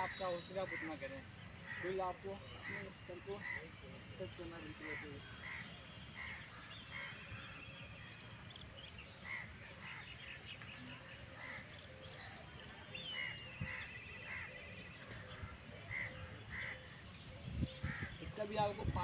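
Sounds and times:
crows cawing: 0:00.0 - 0:03.8, 0:04.6 - 0:07.6, 0:09.2 - 0:10.2, 0:13.2 - 0:17.1, 0:17.8 - 0:18.3.

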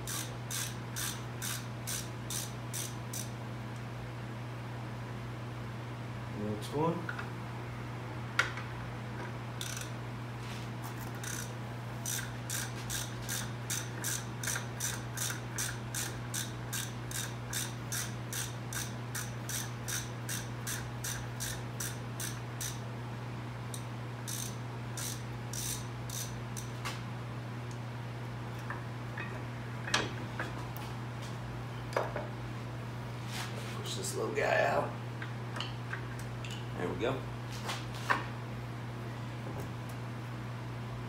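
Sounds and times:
hand ratchet clicking: 0:00.0 - 0:03.3, 0:09.6 - 0:09.9, 0:11.1 - 0:22.8, 0:23.7 - 0:26.7
steady low hum: 0:00.0 - 0:41.0.

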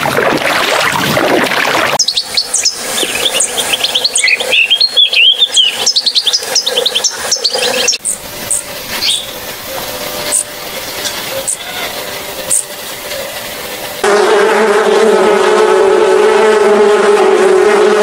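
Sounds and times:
sea water rushing: 0:00.0 - 0:04.4
bird twittering song: 0:02.0 - 0:13.5.

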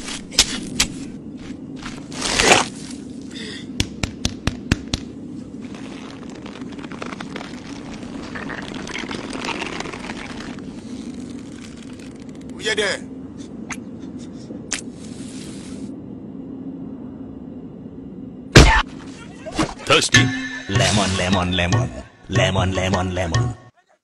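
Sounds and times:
earth and sand crunching: 0:00.0 - 0:03.4, 0:04.9 - 0:12.6
steady low hum: 0:00.0 - 0:23.7.

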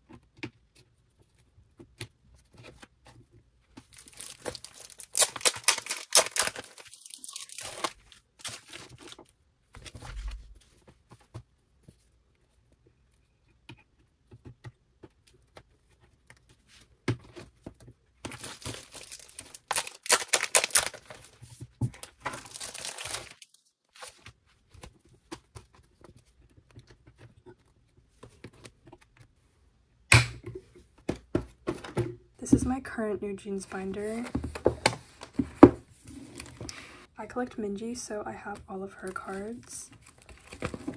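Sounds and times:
plastic binder pages rustling: 0:00.0 - 0:12.1, 0:14.4 - 0:29.3, 0:39.1 - 0:40.9.

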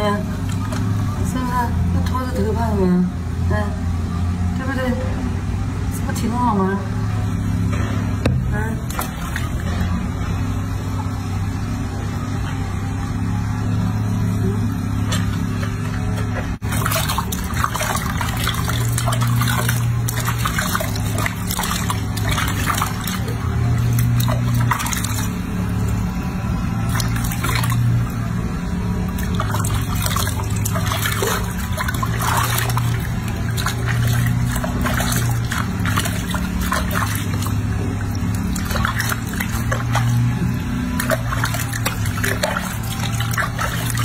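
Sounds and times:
water sloshing and splashing: 0:00.0 - 0:02.5, 0:08.3 - 0:12.8, 0:14.8 - 0:44.0
water dripping: 0:16.6 - 0:26.1, 0:29.1 - 0:44.0.

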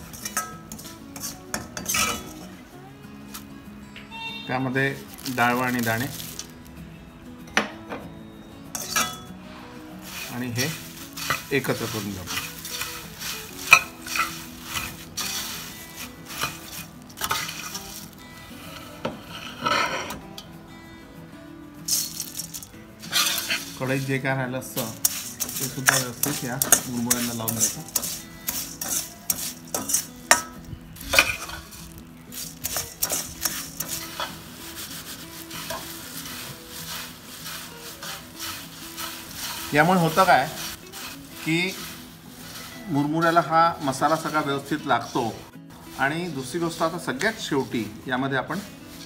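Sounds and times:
metal spoon scraping and clinking pot: 0:00.0 - 0:02.5, 0:08.7 - 0:09.4, 0:10.0 - 0:20.5, 0:21.9 - 0:44.8
dry rice rustling: 0:00.0 - 0:02.6, 0:04.3 - 0:06.8, 0:08.7 - 0:19.7, 0:21.8 - 0:49.0.

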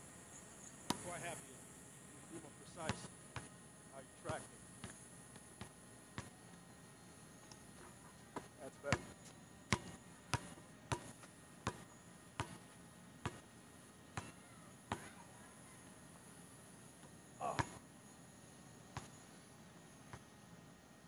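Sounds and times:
basketball bouncing on hard court: 0:00.9 - 0:01.1, 0:02.9 - 0:03.5, 0:08.3 - 0:11.8, 0:12.4 - 0:12.6, 0:14.2 - 0:15.1.

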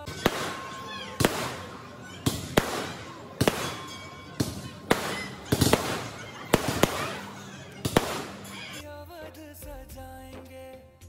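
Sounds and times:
firework crackling: 0:00.0 - 0:08.8
fireworks banging: 0:00.0 - 0:08.8.

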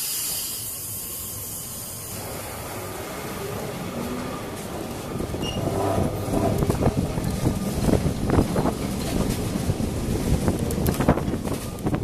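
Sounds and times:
tram wheels and motor rumbling: 0:00.6 - 0:12.0
wheels clattering on rails: 0:03.4 - 0:12.0.

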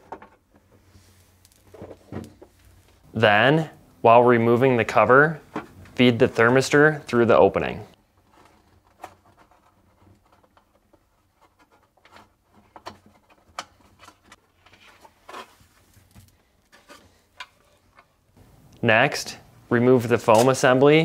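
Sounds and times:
faint rubbing of plastic: 0:08.0 - 0:18.2.

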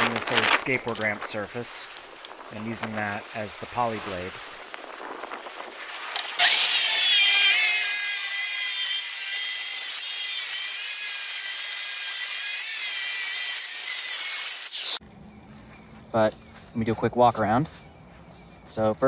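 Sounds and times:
circular saw cutting: 0:06.4 - 0:15.0.

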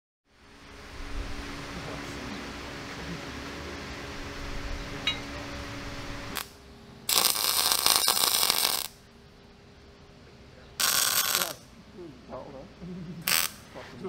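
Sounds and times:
workshop machine hum: 0:00.3 - 0:14.0
welder arc crackling: 0:05.8 - 0:09.0, 0:10.8 - 0:11.7, 0:13.2 - 0:13.8.

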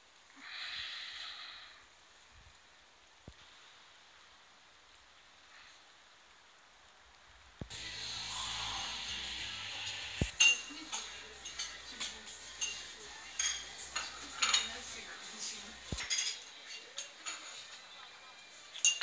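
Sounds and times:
cutlery and dishes clinking: 0:10.2 - 0:19.0.

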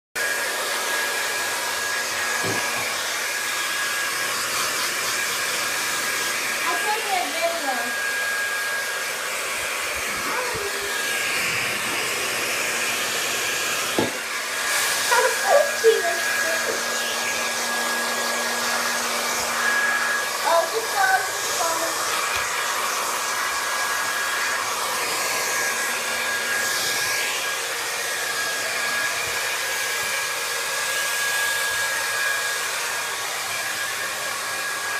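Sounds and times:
hair dryer running: 0:00.2 - 0:34.9.

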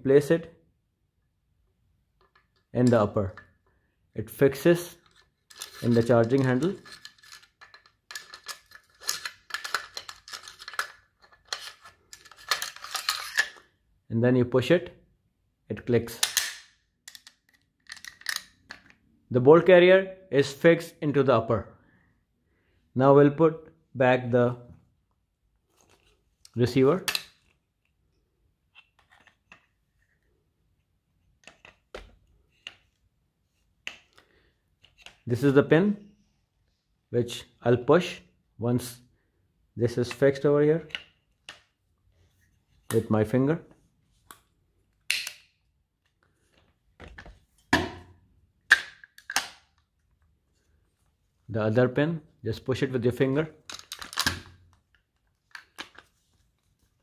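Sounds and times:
metal parts clicking and scraping: 0:05.0 - 0:13.7, 0:16.2 - 0:18.9.

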